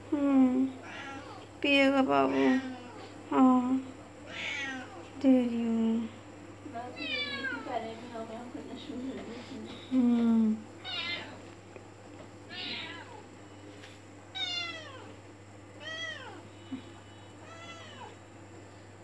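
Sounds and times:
cat meowing: 0.8 - 1.4, 4.3 - 5.0, 7.0 - 7.6, 10.8 - 11.4, 12.5 - 13.2, 14.4 - 15.1, 17.4 - 18.2.

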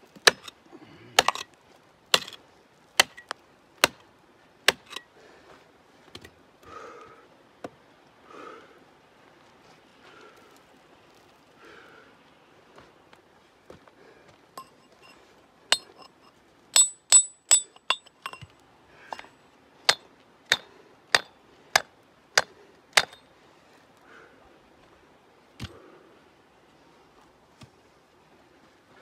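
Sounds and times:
hammer striking rock: 0.2 - 0.5, 1.2 - 1.5, 2.1 - 2.4, 3.0 - 4.0, 4.7 - 5.0, 15.7 - 16.2, 16.8 - 18.5, 19.1 - 19.3, 19.9 - 23.3.

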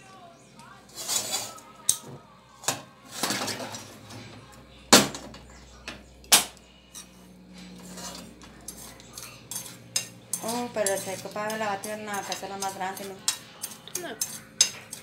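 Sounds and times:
metal spoon scraping a pan: 0.9 - 2.0, 2.6 - 4.4, 6.3 - 15.0.

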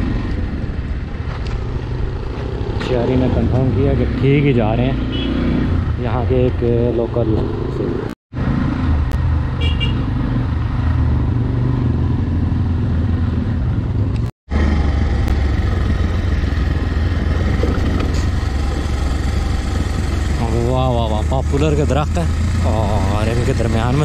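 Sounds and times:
wind and road noise: 0.0 - 24.0
motorcycle engine running: 9.4 - 24.0.

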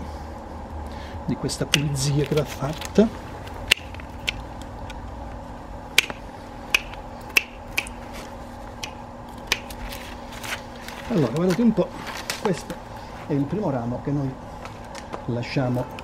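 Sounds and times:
secateurs snipping twigs: 1.6 - 5.0, 6.0 - 12.8.

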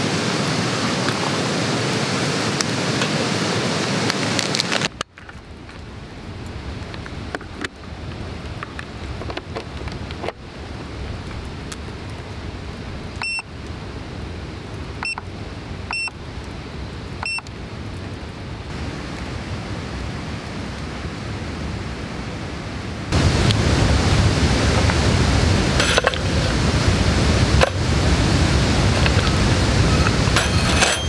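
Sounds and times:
steady hiss: 0.0 - 31.0
short high beeps: 13.2 - 13.4, 15.9 - 16.1, 17.2 - 17.4.

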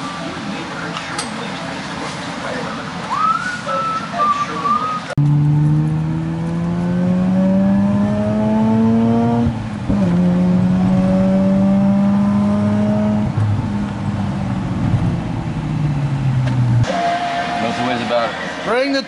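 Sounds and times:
car engine accelerating: 5.2 - 18.7.

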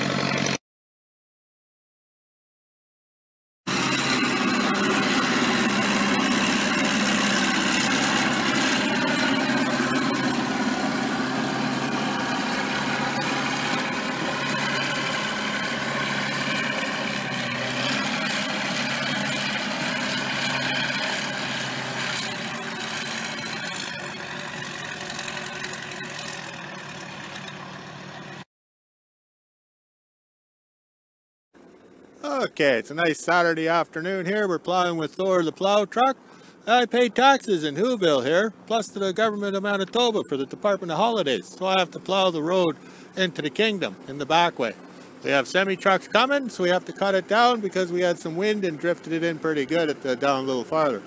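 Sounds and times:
wheel loader diesel engine: 0.0 - 0.6, 3.7 - 28.4, 31.6 - 51.0.

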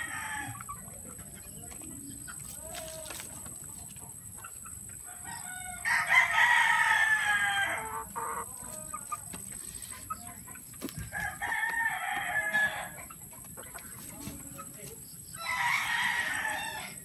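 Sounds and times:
rooster crowing: 5.0 - 8.3, 11.1 - 13.0, 15.4 - 17.0.

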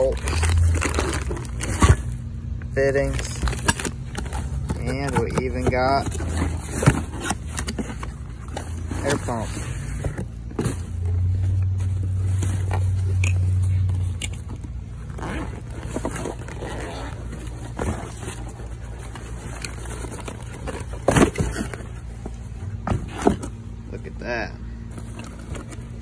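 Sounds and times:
plastic wrapping crinkling: 0.0 - 2.2
cardboard box scraping: 0.0 - 23.6
low steady hum: 0.0 - 26.0.

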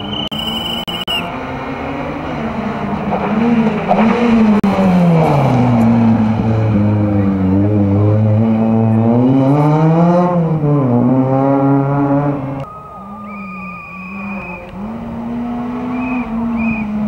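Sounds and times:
high steady whistle-like tone: 0.0 - 1.3, 12.6 - 14.7, 15.9 - 17.0
rally car engine running hard: 1.3 - 12.6, 14.0 - 17.0.

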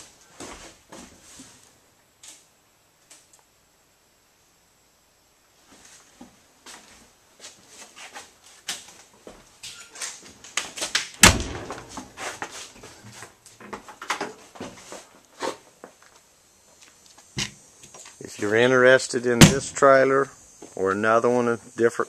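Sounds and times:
door banging shut: 11.2 - 12.3, 19.4 - 19.8
footsteps on metal floor: 11.4 - 15.1.

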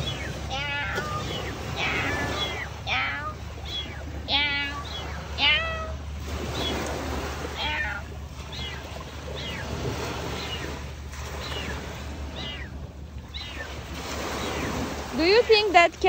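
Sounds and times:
cat meowing: 0.0 - 6.8, 7.4 - 10.8, 11.4 - 13.7.

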